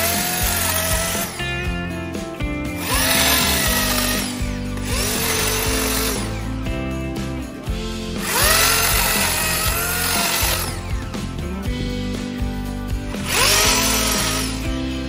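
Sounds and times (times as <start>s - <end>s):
electric chainsaw cutting stems: 0.0s - 2.2s, 2.8s - 7.3s, 8.1s - 11.3s, 13.1s - 14.9s.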